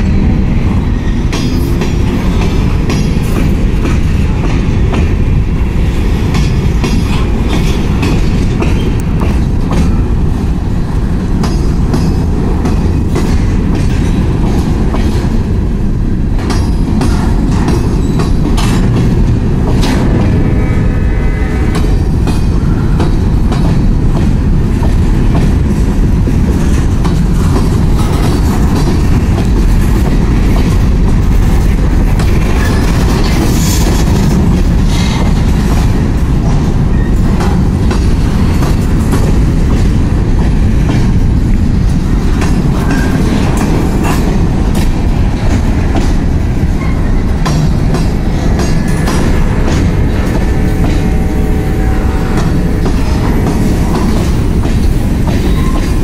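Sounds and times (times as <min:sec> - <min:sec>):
freight train rumbling: 0:00.0 - 0:56.0
train wheel squeal: 0:16.6 - 0:18.7, 0:32.3 - 0:34.1, 0:36.7 - 0:37.6, 0:42.8 - 0:44.2, 0:46.7 - 0:47.4, 0:55.3 - 0:56.0.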